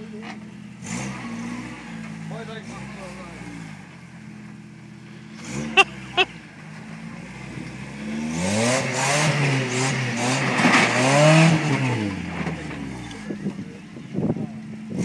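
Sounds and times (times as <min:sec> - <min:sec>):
truck engine revving hard: 0:00.8 - 0:03.8, 0:05.3 - 0:13.4.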